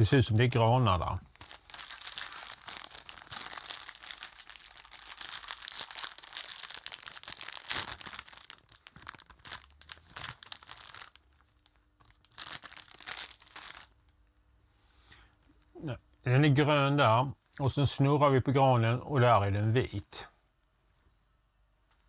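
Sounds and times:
plastic bag crinkling: 0:01.2 - 0:14.3.

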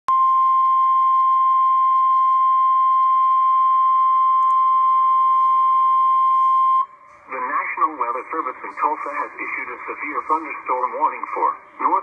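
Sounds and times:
loud high-pitched alarm tone: 0:01.9 - 0:07.1.

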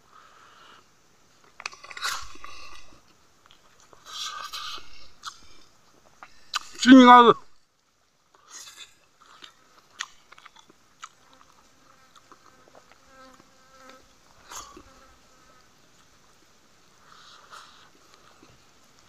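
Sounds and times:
chewing: 0:01.4 - 0:06.8, 0:08.3 - 0:15.0, 0:17.1 - 0:19.0
mouth clicks: 0:04.1 - 0:06.8
buzzing fly: 0:11.3 - 0:15.8.

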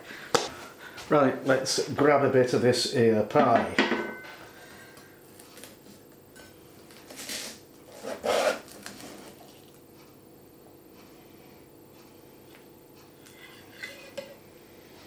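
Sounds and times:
knife scraping through pastry: 0:07.2 - 0:09.4.

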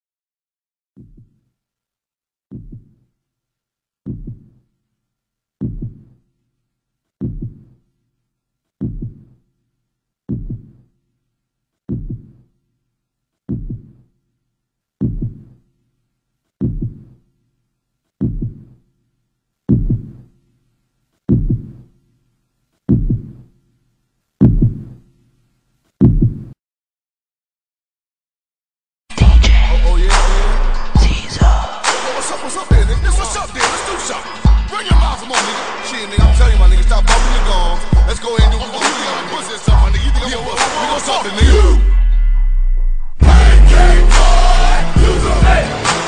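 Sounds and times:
heartbeat double thump: 0:26.0 - 0:26.5, 0:41.4 - 0:45.6.

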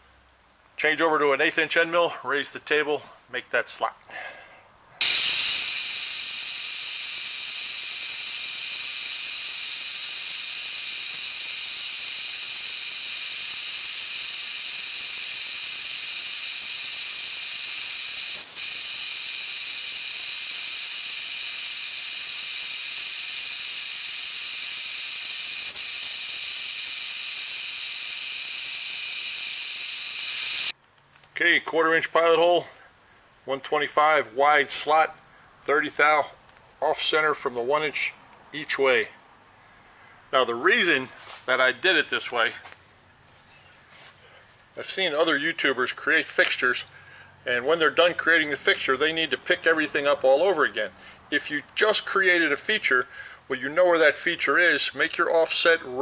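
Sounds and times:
milling machine cutting: 0:05.0 - 0:30.7.

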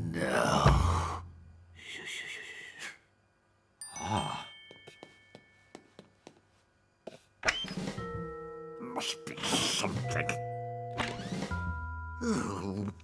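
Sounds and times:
cartoon footsteps on tile: 0:04.6 - 0:07.4.

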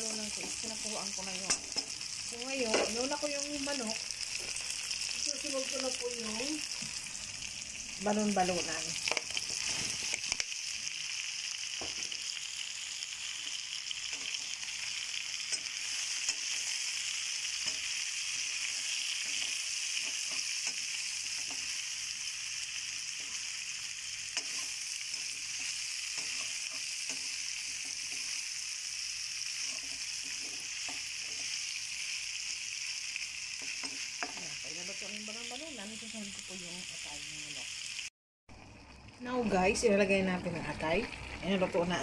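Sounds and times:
chicken sizzling in a pan: 0:00.0 - 0:42.0.

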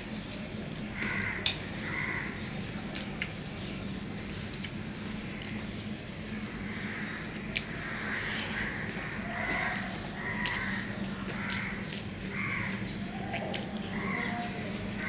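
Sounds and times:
crows cawing: 0:00.9 - 0:02.4, 0:06.6 - 0:15.0
chewing clicks: 0:09.4 - 0:12.2.

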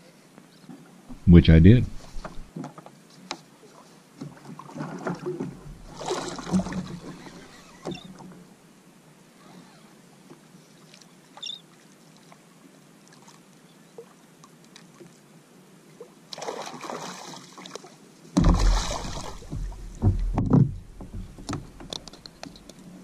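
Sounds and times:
fish thumping against kayak: 0:02.1 - 0:02.6, 0:04.8 - 0:08.0, 0:18.4 - 0:22.7
water splashing: 0:04.3 - 0:08.3, 0:16.3 - 0:22.8.

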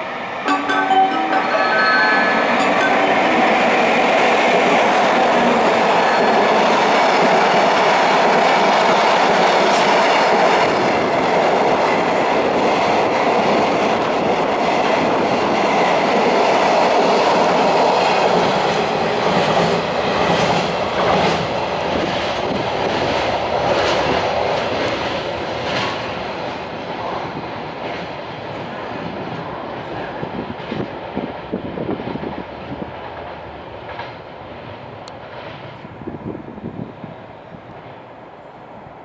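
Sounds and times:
train wheels rumbling on track: 0:00.0 - 0:39.0
wheels clacking over rail joints: 0:02.8 - 0:26.7.

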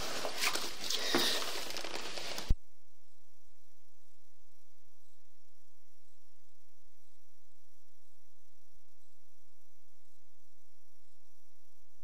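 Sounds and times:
handling rustling: 0:00.0 - 0:02.6.

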